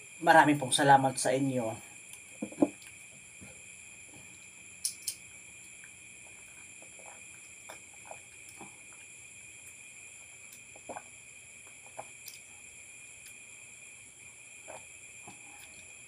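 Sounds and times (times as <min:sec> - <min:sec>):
crickets chirping: 0:00.0 - 0:16.0
soft swallowing gulps: 0:02.2 - 0:03.5, 0:05.6 - 0:12.6, 0:14.5 - 0:16.0.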